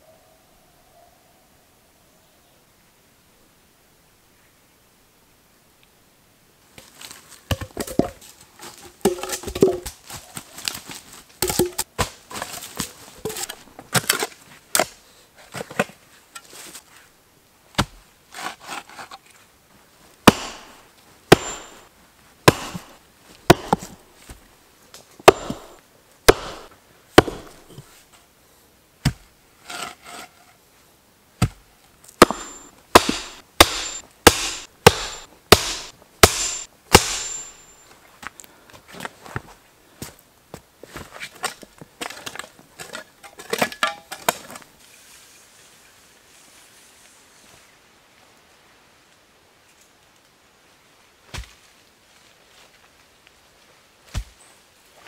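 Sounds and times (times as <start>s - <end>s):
knocks and scrapes of wood: 6.8s - 17.0s, 17.8s - 19.4s, 29.0s - 30.6s
sledgehammer striking wooden post: 20.2s - 24.0s, 25.2s - 27.8s, 32.2s - 37.7s.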